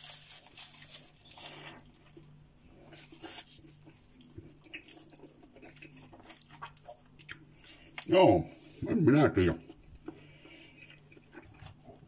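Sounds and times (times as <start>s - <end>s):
soft chewing with crunches: 0.0s - 12.0s.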